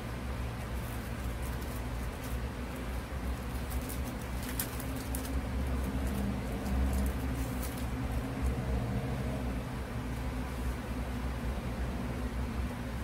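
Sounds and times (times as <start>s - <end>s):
steady low hum: 0.0s - 13.0s
paper rustling: 0.6s - 8.3s.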